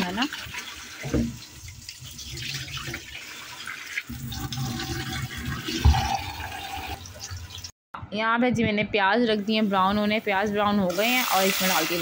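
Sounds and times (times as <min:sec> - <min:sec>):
water splashing into sink: 0:00.0 - 0:07.7.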